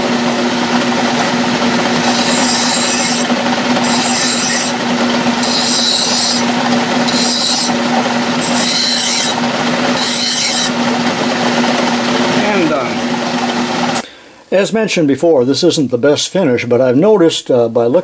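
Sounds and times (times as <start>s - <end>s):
lathe humming: 0.0s - 14.0s
hand file scraping metal: 1.2s - 10.9s.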